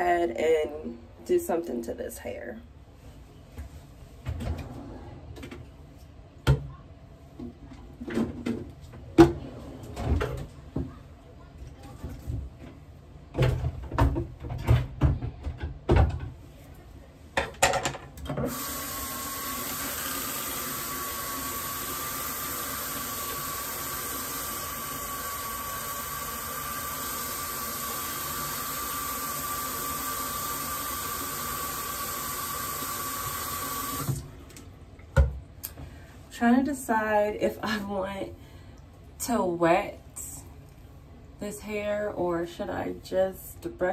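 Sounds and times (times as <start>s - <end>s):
sink tap running: 18.4s - 34.2s.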